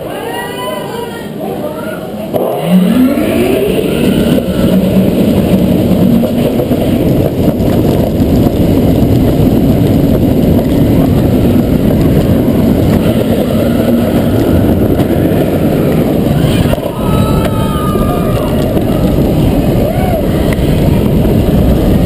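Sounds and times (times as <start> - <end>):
roller coaster rumbling on track: 0.0 - 22.0
wind buffeting microphone: 2.2 - 22.0.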